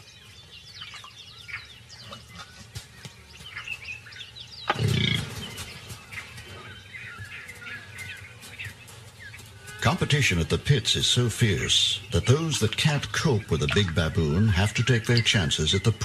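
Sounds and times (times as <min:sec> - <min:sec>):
birds chirping: 0:00.0 - 0:16.0
deep animal call: 0:04.7 - 0:05.7.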